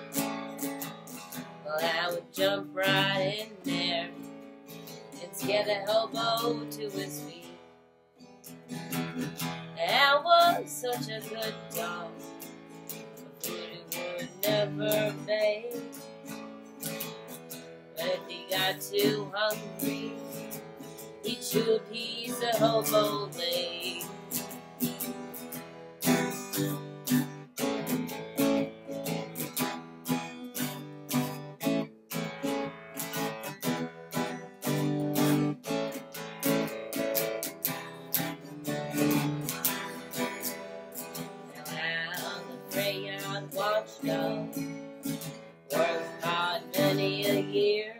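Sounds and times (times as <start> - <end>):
acoustic guitar strumming: 0.0 - 47.9
woman singing: 1.3 - 7.7, 9.7 - 16.1, 17.9 - 24.6, 38.7 - 47.9.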